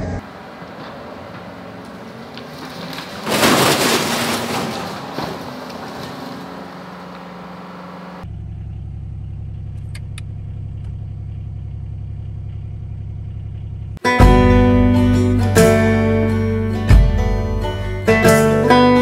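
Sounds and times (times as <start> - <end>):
tractor engine running: 0.0 - 19.0
loud crashing burst: 3.2 - 5.5.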